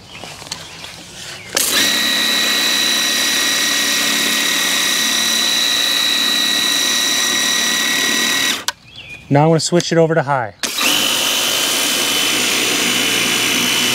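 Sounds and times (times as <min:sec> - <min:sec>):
power cleaner motor whine: 0:01.6 - 0:08.7, 0:10.6 - 0:13.9.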